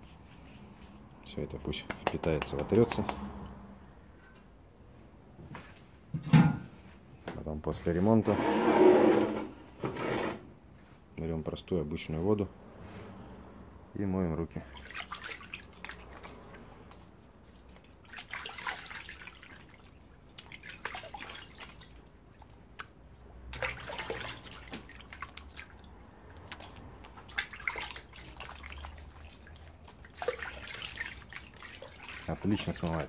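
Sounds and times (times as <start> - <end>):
hands splashing in bucket of water: 14.6 - 33.0.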